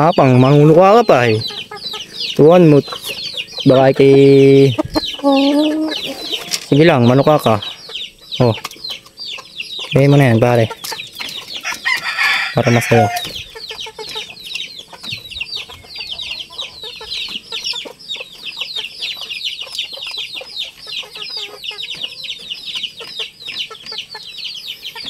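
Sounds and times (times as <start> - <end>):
chicks peeping: 0.0 - 25.0.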